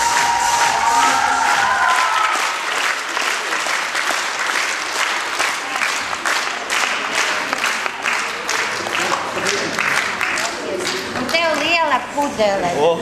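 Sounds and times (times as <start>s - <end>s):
hands clapping: 0.0s - 11.9s.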